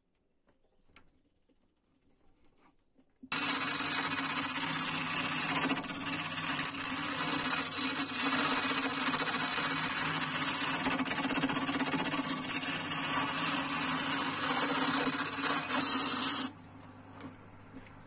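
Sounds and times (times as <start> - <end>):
chisel scraping spinning wood: 3.3 - 16.6
lathe motor hum: 3.3 - 16.6.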